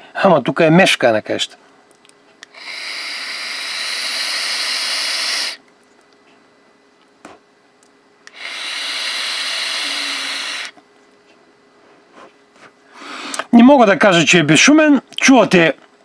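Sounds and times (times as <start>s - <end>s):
vape airflow hissing: 2.5s - 5.6s, 8.3s - 10.8s.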